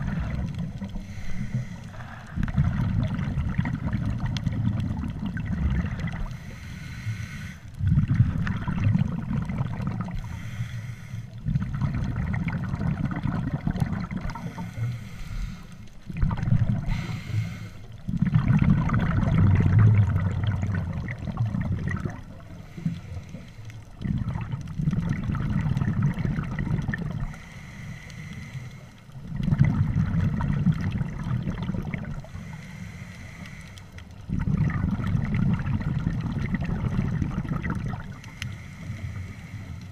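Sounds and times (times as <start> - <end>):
diver inhaling through regulator: 0.0 - 2.9, 5.9 - 8.7, 10.0 - 11.7, 14.1 - 15.9, 16.7 - 18.0, 22.4 - 23.9, 27.2 - 29.1, 32.2 - 34.1, 38.1 - 39.9
exhaled bubbles gurgling underwater: 0.0 - 39.9.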